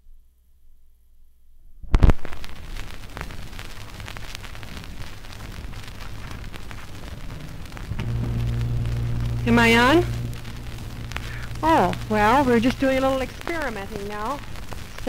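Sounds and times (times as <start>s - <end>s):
record crackle and hiss: 0.0s - 15.0s
faint low hum: 7.0s - 15.0s.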